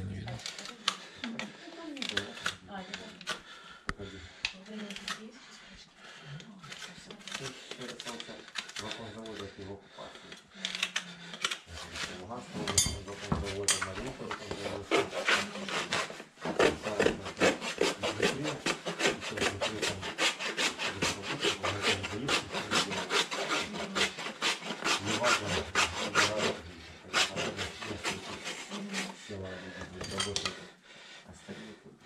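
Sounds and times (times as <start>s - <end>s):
hoof rasp filing hoof: 11.6s - 29.2s.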